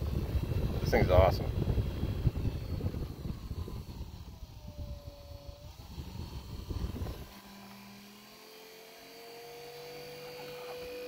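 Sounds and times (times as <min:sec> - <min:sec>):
car fan air buffeting: 0:00.0 - 0:08.0
fan motor whine: 0:00.0 - 0:11.0.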